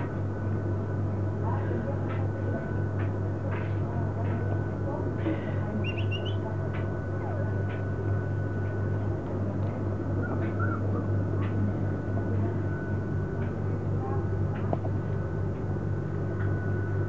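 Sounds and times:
steady low hum: 0.0 - 17.0
puppies squeaking: 5.8 - 6.4.

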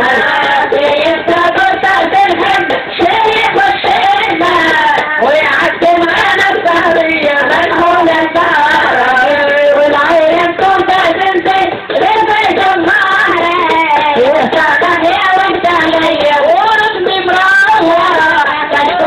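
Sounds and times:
music with high-pitched singing: 0.0 - 19.0.

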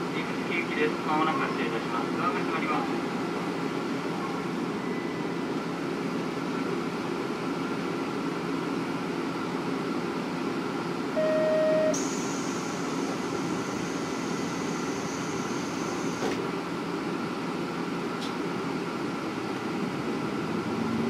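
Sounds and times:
short loud beep: 11.2 - 12.2
thin high tone: 11.2 - 12.2.

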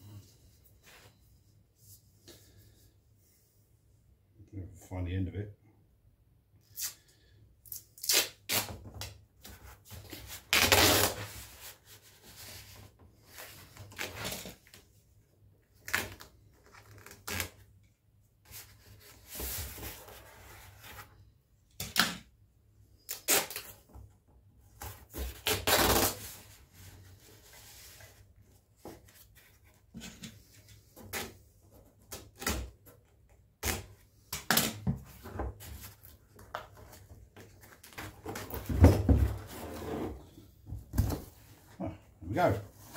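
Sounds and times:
duct tape ripping: 7.7 - 8.8, 10.5 - 11.2, 23.0 - 23.8, 25.4 - 26.2.

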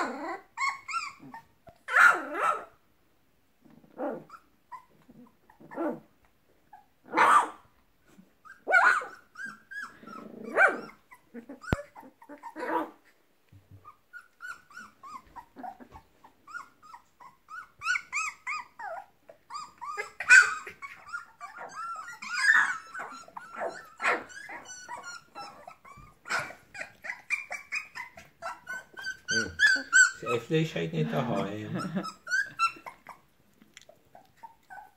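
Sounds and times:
puppies growling and barking: 0.0 - 2.8, 3.6 - 34.9
puppies yipping and whining: 0.0 - 2.8, 3.7 - 34.9.

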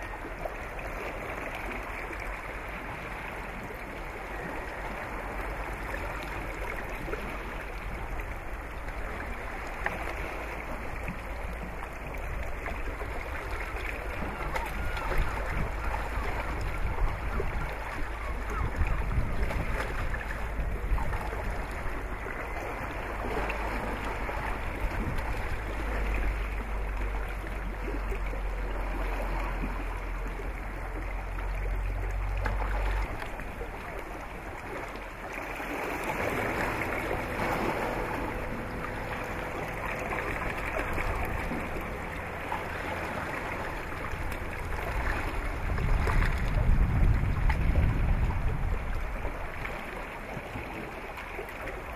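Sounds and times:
water: 0.0 - 51.9
wind: 0.0 - 51.9
low rumble: 7.2 - 49.9.

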